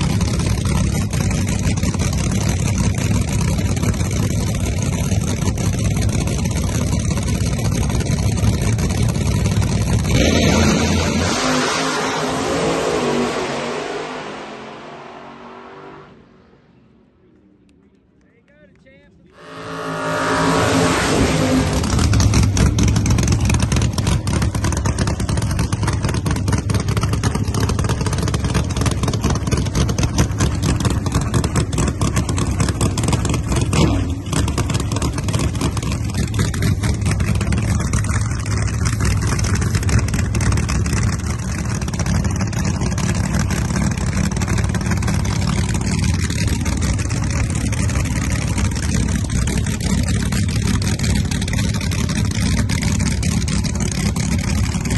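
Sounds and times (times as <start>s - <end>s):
drag race engines running lumpy: 0.0s - 15.4s, 19.1s - 54.9s.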